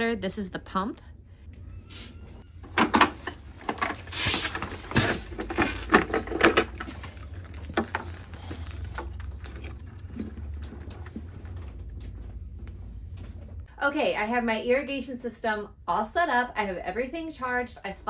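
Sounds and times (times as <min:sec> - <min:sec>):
low steady rumble: 0:00.0 - 0:18.0
handling knocks and clicks: 0:02.7 - 0:13.7.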